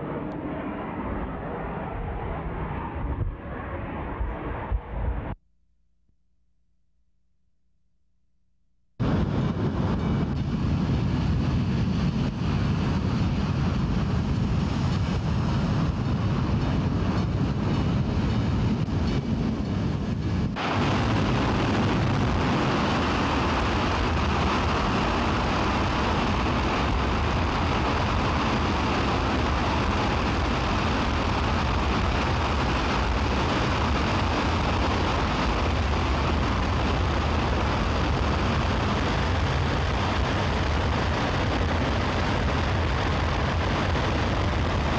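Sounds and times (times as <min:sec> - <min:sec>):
rocket engine firing: 0:19.9 - 0:44.9.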